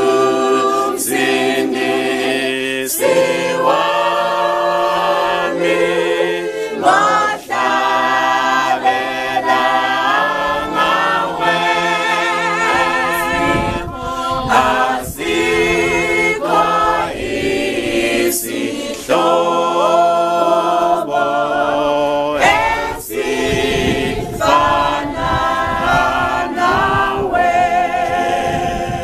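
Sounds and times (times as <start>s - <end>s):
women and child singing hymn: 0.0s - 29.0s.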